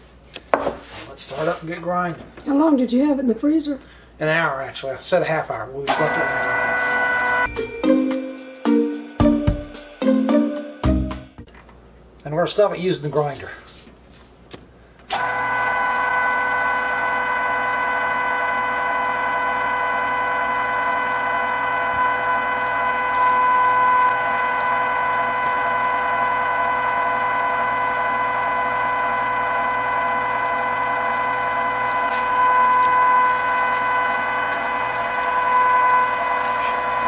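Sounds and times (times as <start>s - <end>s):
meat grinder motor whining: 5.9s - 7.5s, 15.1s - 37.0s.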